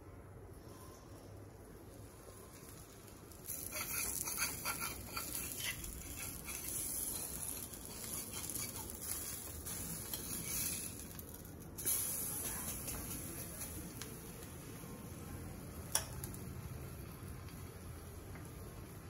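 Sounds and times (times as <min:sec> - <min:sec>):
bread sizzling in a pan: 0:01.9 - 0:19.0
metal spatula scraping a pan: 0:03.4 - 0:11.1.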